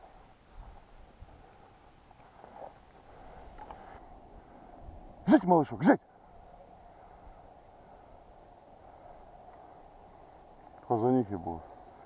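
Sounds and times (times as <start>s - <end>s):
footsteps through dry grass: 6.1s - 12.0s.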